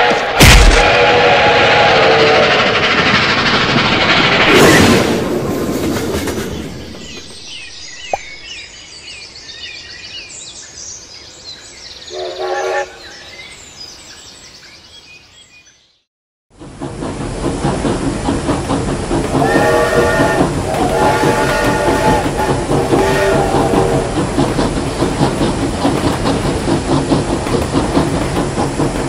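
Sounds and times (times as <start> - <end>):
passing train rumble and clatter: 0.0 - 8.4, 16.5 - 29.0
train running: 0.0 - 8.4, 16.5 - 29.0.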